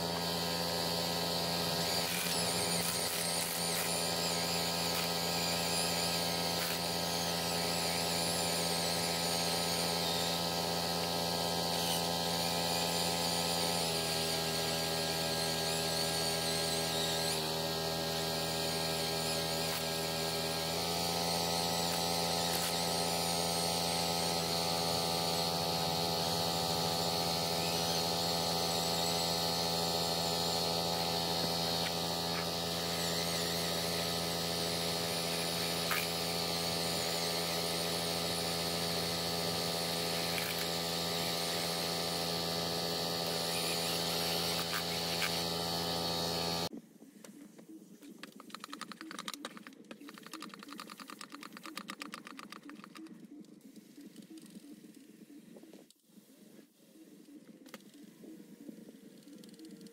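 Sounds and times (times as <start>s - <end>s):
electric motor humming: 0.0s - 46.7s.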